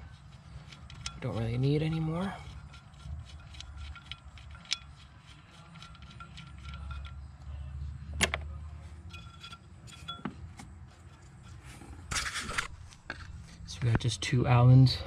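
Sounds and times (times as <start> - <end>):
light metallic clicks and clinks: 0.6 - 7.6, 8.2 - 11.6.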